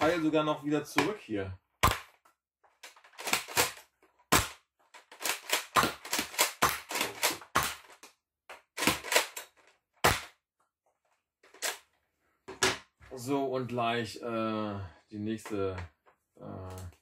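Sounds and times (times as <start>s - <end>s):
toy blaster plastic clacks: 5.0s - 9.6s.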